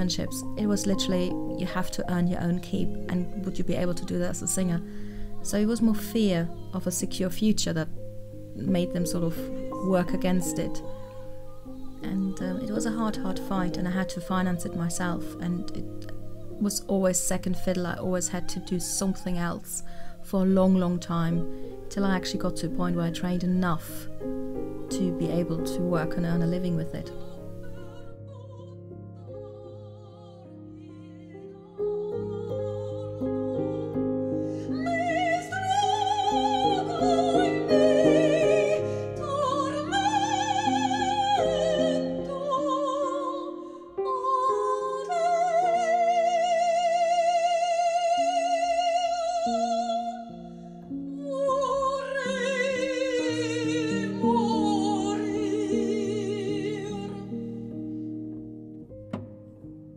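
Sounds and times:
soprano singing operatic phrases: 0:00.0 - 0:57.7
soft instrumental accompaniment: 0:00.0 - 0:59.9.

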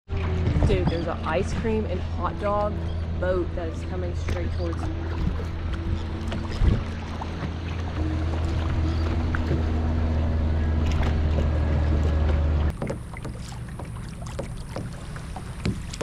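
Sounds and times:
light water splashes: 0:00.1 - 0:16.0
motorboat engine humming: 0:00.1 - 0:16.0.

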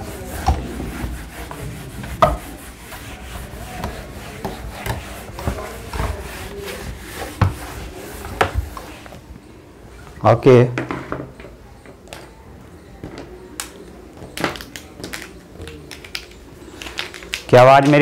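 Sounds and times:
duster rubbing whiteboard: 0:00.0 - 0:09.2.

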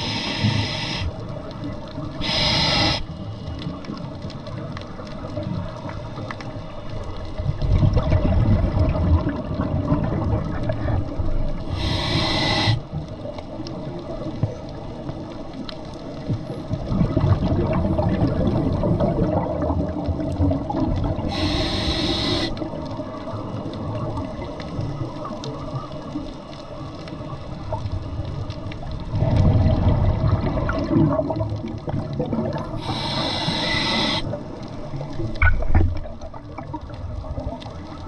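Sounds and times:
regulator inhalation hiss: 0:00.0 - 0:01.2, 0:02.2 - 0:03.4, 0:11.7 - 0:12.9, 0:21.3 - 0:22.6, 0:32.7 - 0:34.4
exhaled bubbles rumbling underwater: 0:00.0 - 0:38.0.

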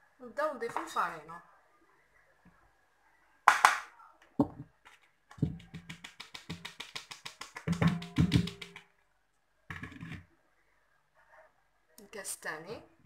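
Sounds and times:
sieve knocking on metal bowl: 0:07.6 - 0:08.8.

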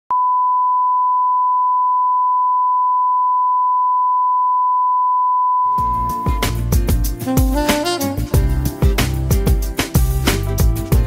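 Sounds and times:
music with drums and bass: 0:05.7 - 0:11.0.

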